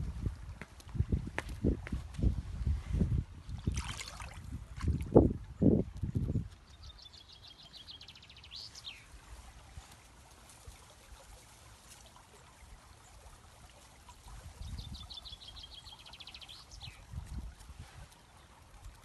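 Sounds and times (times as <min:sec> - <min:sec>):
stream trickling: 0:00.0 - 0:19.0
songbird singing: 0:05.6 - 0:09.9, 0:14.2 - 0:18.7.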